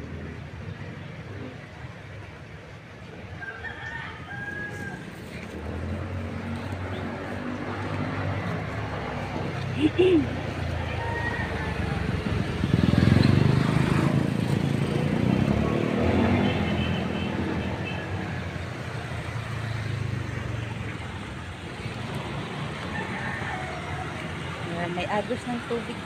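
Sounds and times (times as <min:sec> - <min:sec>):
vehicle engine passing: 0:04.9 - 0:26.0.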